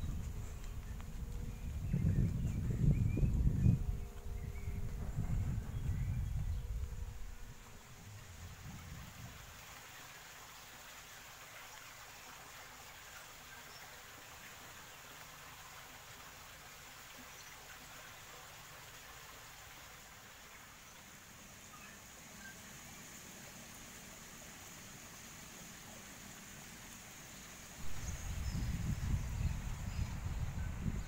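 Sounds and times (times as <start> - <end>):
creek trickling over rocks: 7.6 - 30.4
faint bird chirps: 21.6 - 23.1.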